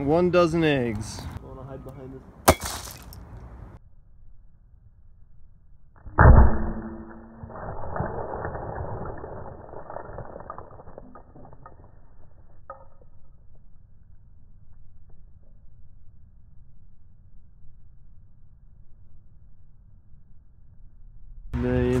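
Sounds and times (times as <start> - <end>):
anvil thud: 2.4 - 3.2, 6.1 - 7.4
sharp crack: 2.5 - 3.4
eggs crunching and rattling: 7.4 - 12.0.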